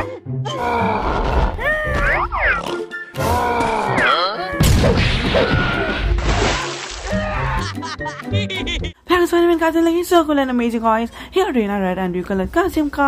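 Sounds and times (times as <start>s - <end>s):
cartoon music: 1.6s - 4.6s
splash into water: 4.7s - 7.3s.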